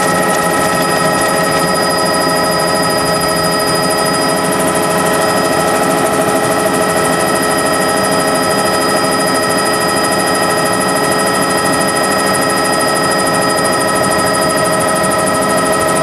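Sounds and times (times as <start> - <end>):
helicopter engine and rotor drone: 0.0 - 16.0
steady whining tones: 0.0 - 16.0.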